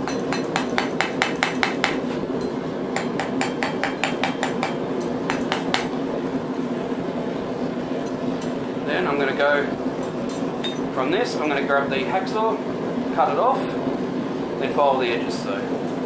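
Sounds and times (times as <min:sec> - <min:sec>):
hammer tapping steel on anvil: 0:00.0 - 0:06.0
steady low hum: 0:00.0 - 0:16.0.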